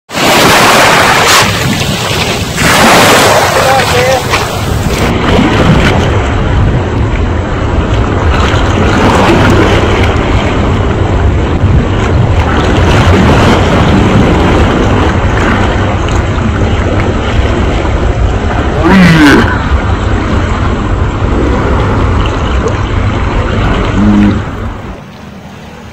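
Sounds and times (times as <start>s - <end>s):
choppy sea water splashing: 0.1s - 25.9s
wind buffeting microphone: 0.2s - 25.1s.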